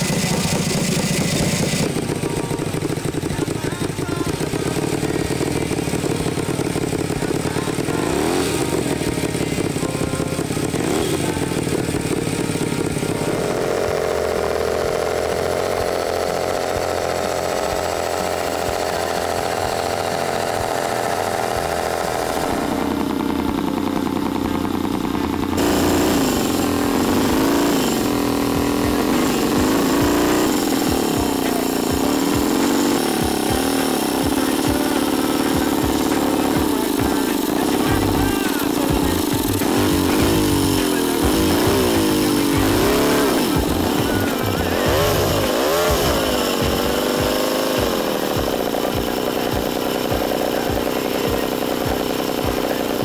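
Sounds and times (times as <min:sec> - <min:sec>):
engine revving: 0:00.0 - 0:53.0.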